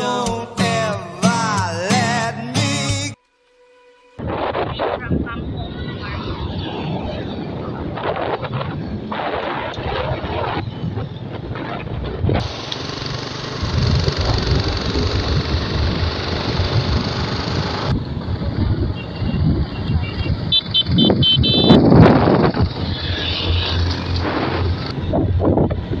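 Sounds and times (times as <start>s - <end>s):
wind rush on microphone: 4.2s - 12.5s, 13.6s - 26.0s
motorcycle engine running: 12.4s - 22.9s.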